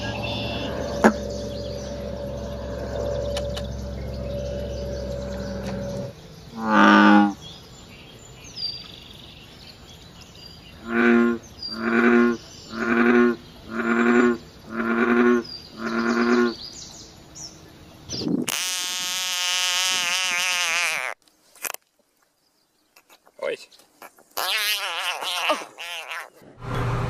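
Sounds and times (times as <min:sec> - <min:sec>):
bullfrog deep croaks: 0:00.0 - 0:07.4, 0:10.8 - 0:16.6
longer wavering frog call: 0:00.0 - 0:07.4.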